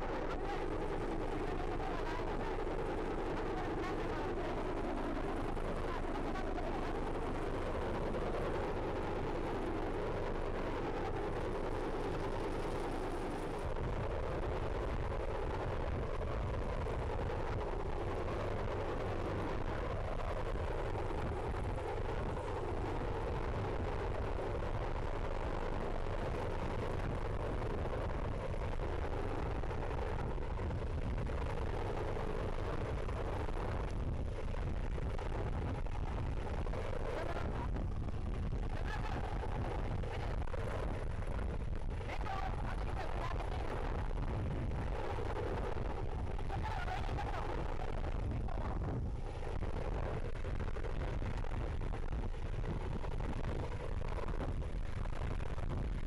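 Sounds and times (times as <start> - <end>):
helicopter hovering: 0.0 - 33.6
wind buffeting microphone: 4.5 - 56.0.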